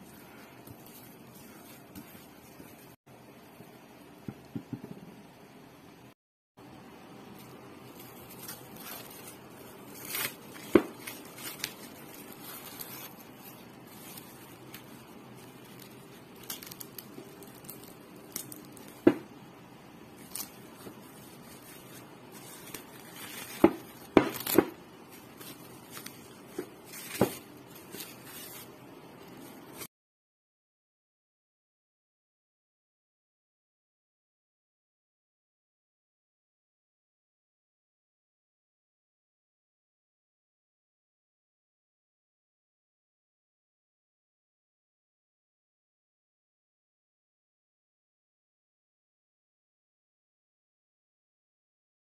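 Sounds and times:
dough squishing: 0.0s - 3.0s, 7.4s - 19.4s, 20.1s - 29.9s
cling film crinkling and tearing: 7.4s - 19.2s, 20.1s - 29.9s.

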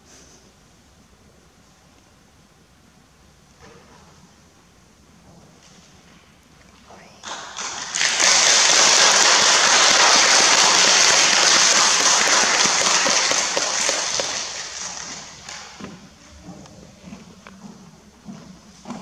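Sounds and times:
audience applause: 7.2s - 15.8s.

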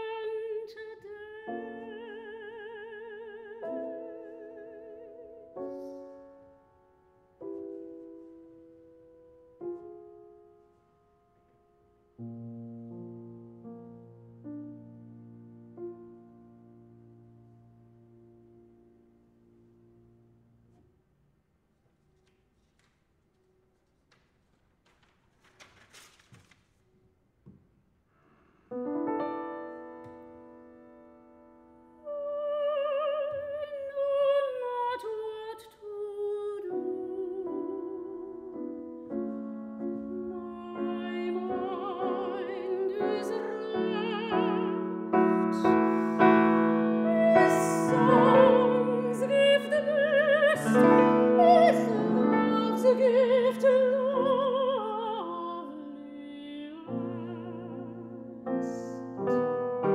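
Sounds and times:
soprano singing with vibrato: 0.0s - 5.6s, 32.0s - 59.1s
grand piano: 0.0s - 59.9s.

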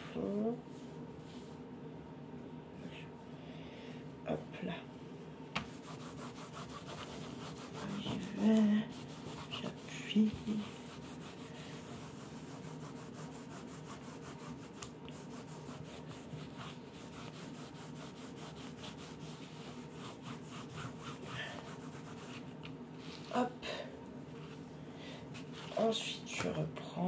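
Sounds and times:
cloth rubbing over paper: 5.6s - 23.5s, 25.3s - 26.3s.

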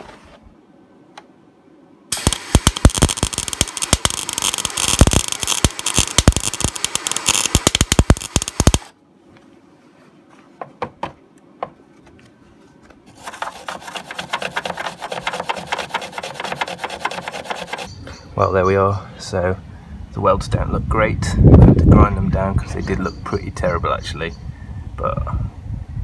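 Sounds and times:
welder arc crackling and popping: 2.1s - 9.0s
file rasping on metal: 13.2s - 17.9s.

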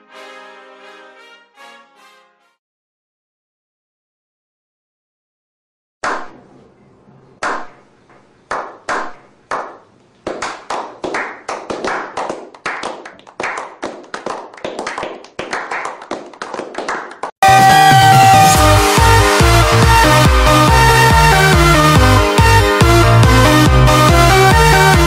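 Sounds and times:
people clapping slowly: 8.5s - 17.4s.

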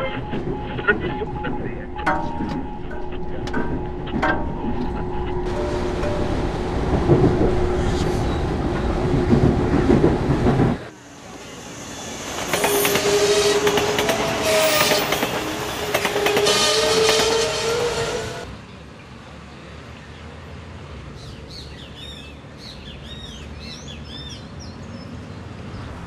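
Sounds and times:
steady high tone: 0.0s - 9.3s
rumble inside moving train: 0.0s - 21.3s
train wheels clattering over joints: 9.0s - 10.9s.

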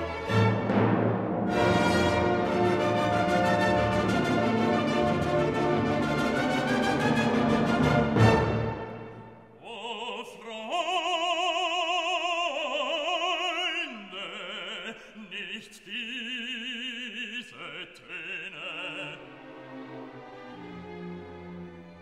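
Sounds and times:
operatic singing voice: 9.5s - 19.6s.

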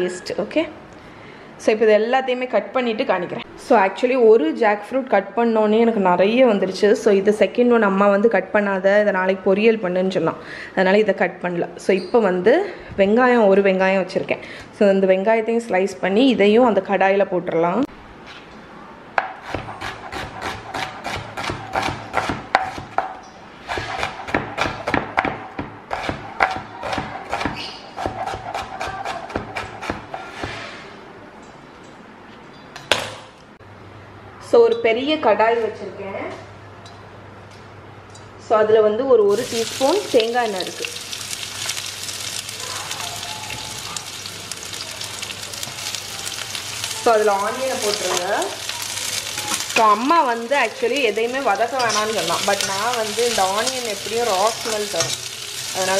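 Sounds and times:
knife chopping on cutting board: 19.2s - 23.1s, 23.7s - 30.6s
onions sizzling in oil: 39.3s - 55.9s.

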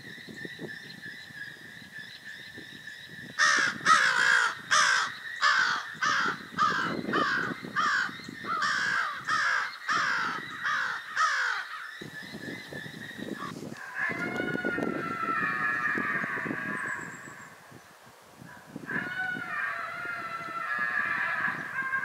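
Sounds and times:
bird calls falling in pitch: 13.2s - 17.6s.

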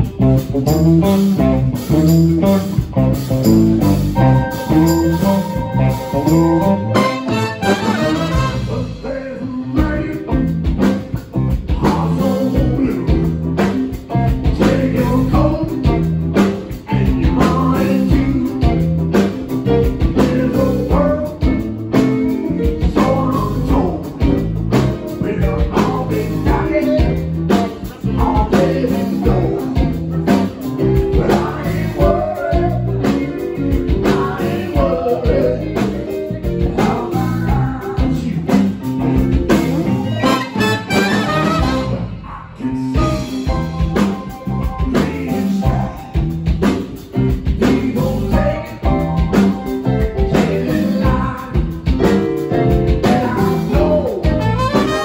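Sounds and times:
blues-rock band playing: 0.0s - 42.2s, 42.8s - 55.0s
person singing: 4.1s - 46.8s, 47.4s - 55.0s
horn section: 4.2s - 9.1s, 40.0s - 42.4s, 43.0s - 43.7s, 54.2s - 55.0s.

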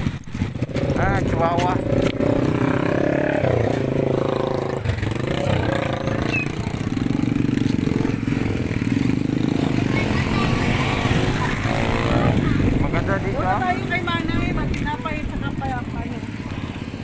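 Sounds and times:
small motorcycle engine running: 0.0s - 17.0s.

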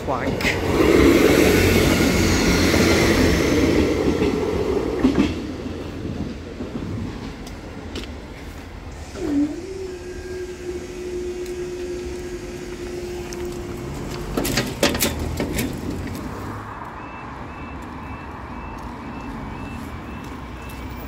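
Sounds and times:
level crossing alarm beeps: 17.0s - 21.0s.

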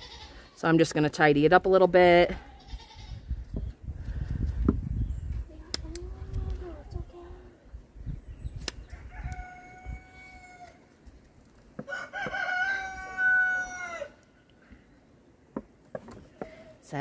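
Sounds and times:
shears snipping: 5.6s - 6.8s
rooster crowing: 8.9s - 10.8s, 11.8s - 14.2s.

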